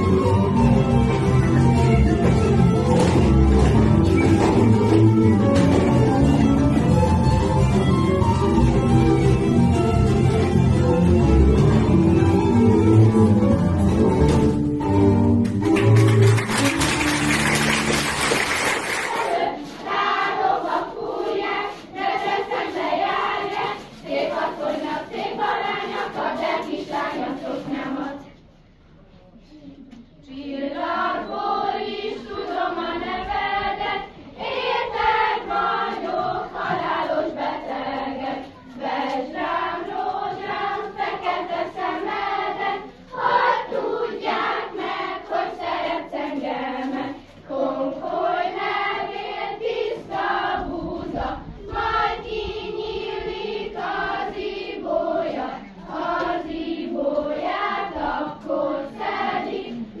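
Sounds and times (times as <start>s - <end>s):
young voices singing together: 18.8s - 28.4s, 30.1s - 60.0s.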